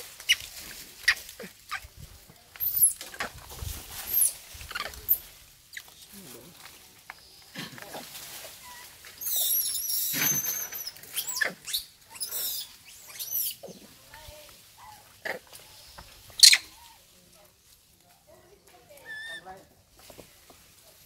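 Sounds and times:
monkeys squeaking and grunting: 2.6 - 3.2, 4.0 - 5.9, 8.6 - 13.9, 14.8 - 17.0, 19.0 - 19.5
monkey high squeal: 9.2 - 13.8, 16.4 - 16.8, 19.1 - 19.4
monkey shrill call: 9.2 - 13.8, 16.4 - 16.8, 19.1 - 19.4.

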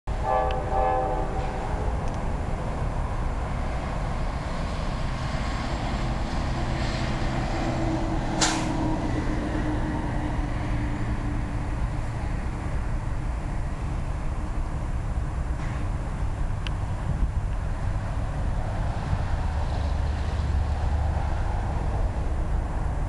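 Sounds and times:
distant train air horn: 0.1 - 2.0
steady low rumble: 0.1 - 23.0.

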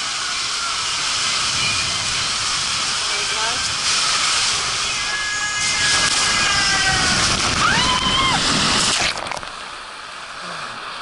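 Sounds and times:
water rushing down a slide flume: 0.0 - 11.0
splash into pool: 3.8 - 9.7.

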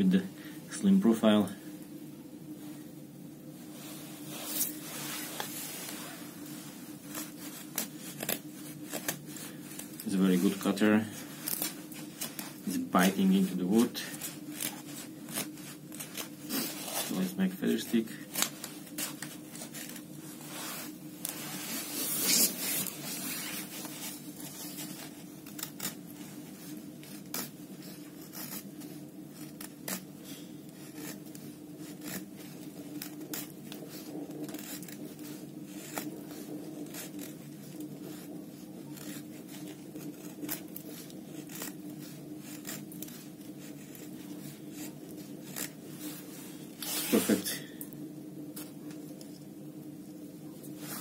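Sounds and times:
knife scraping wood: 7.1 - 47.9.

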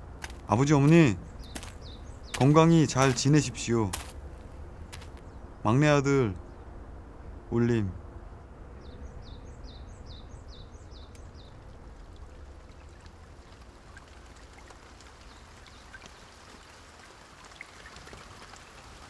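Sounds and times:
low rumble with soft hiss: 0.0 - 19.0
small bird chirping: 1.0 - 3.4.

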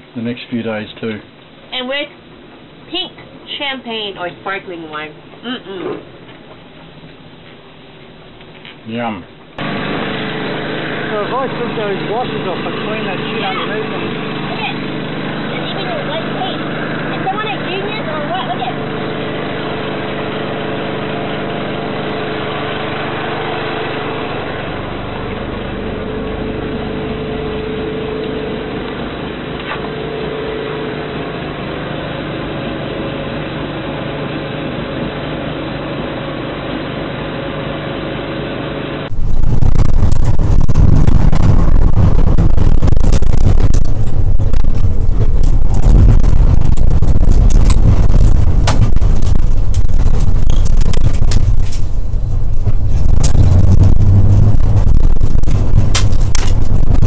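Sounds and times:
steady machine hum: 0.0 - 57.0
car driving on dirt road: 39.1 - 57.0.

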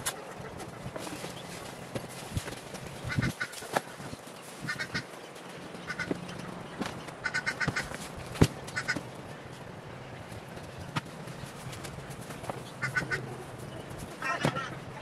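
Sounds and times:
bird honking calls: 3.0 - 3.7, 4.6 - 5.1, 5.8 - 6.6, 7.2 - 7.9, 8.7 - 9.0, 12.8 - 15.0.

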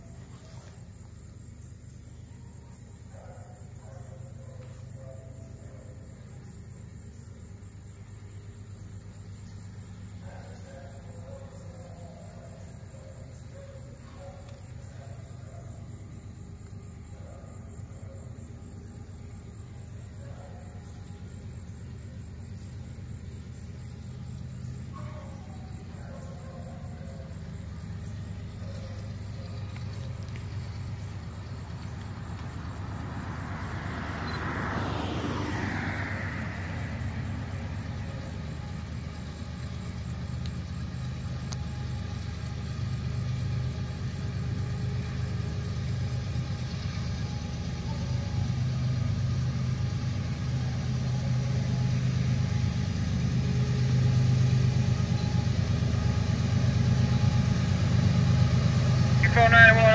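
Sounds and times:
diesel locomotive engine drone: 0.0 - 59.9
passing vehicle noise: 14.7 - 59.9.

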